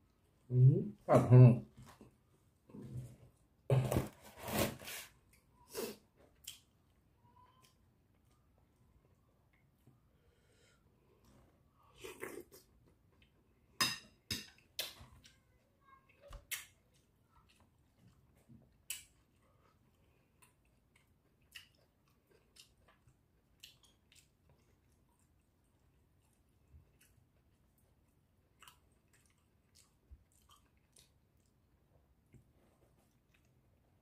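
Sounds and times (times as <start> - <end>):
man chewing with mouth smacks: 5.2 - 9.8, 16.1 - 34.0.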